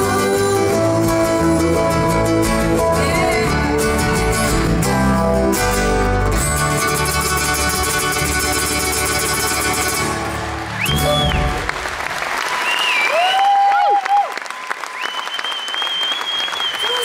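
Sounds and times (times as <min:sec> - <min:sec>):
electric bass: 0:00.0 - 0:11.9
ukulele: 0:00.0 - 0:11.9
acoustic guitar: 0:00.0 - 0:12.0.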